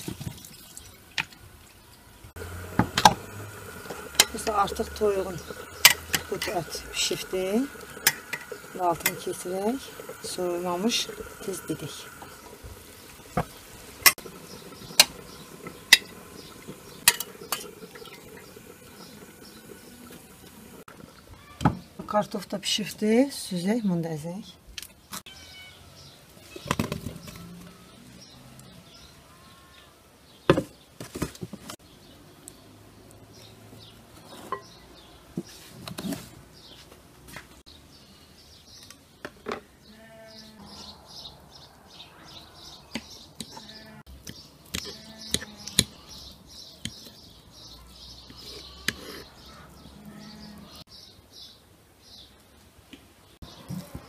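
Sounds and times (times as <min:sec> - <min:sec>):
birds chirping: 0:00.6 - 0:31.0, 0:31.8 - 0:37.0, 0:37.6 - 0:52.4, 0:53.2 - 0:54.0
fork scraping wooden board: 0:48.4 - 0:49.3.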